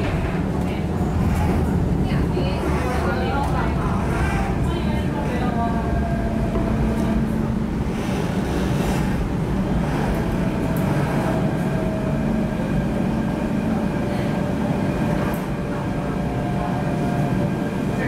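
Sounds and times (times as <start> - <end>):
train cabin running rumble: 0.0 - 18.0.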